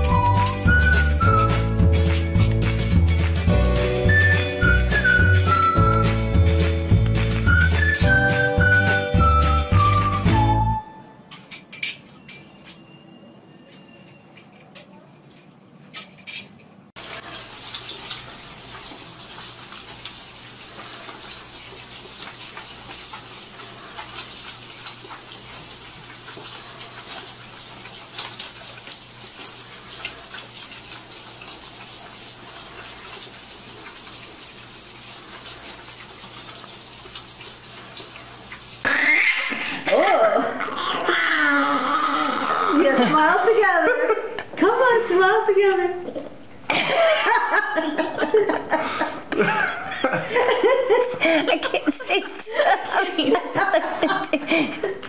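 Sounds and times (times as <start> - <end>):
running water with splashes: 0.0 - 10.5, 17.0 - 38.9.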